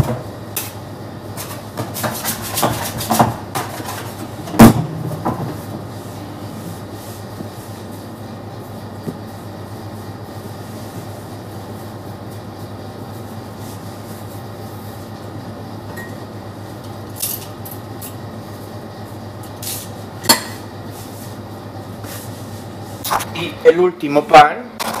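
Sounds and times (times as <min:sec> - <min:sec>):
kitchen machinery humming: 0:00.0 - 0:25.0.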